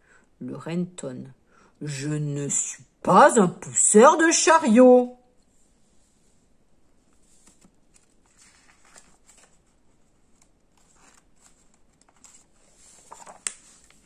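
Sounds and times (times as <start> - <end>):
book pages rustling: 5.7 - 14.0.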